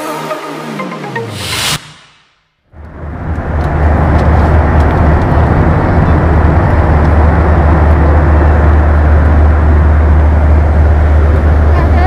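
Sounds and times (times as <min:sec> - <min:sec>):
low hum: 0:00.6 - 0:12.0
airliner cabin drone: 0:02.7 - 0:12.0.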